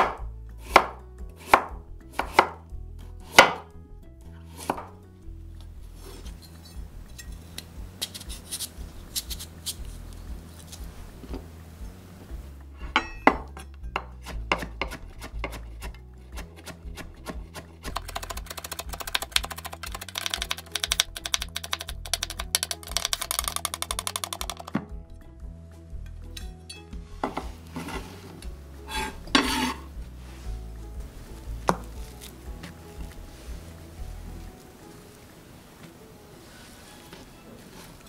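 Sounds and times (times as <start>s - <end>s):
knife chopping carrot on wooden board: 0.0s - 2.6s, 3.3s - 3.7s, 13.4s - 24.7s.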